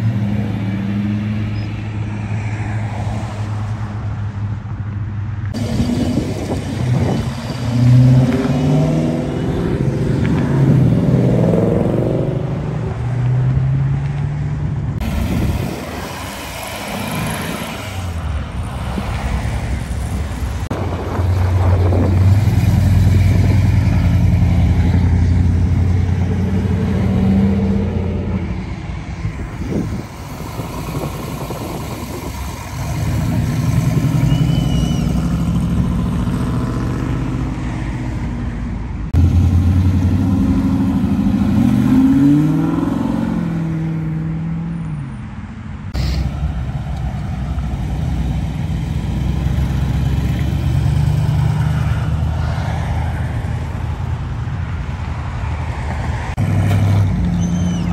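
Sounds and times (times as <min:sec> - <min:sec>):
cars accelerating past: 0:05.5 - 0:38.4, 0:39.1 - 0:45.0, 0:54.9 - 0:57.9.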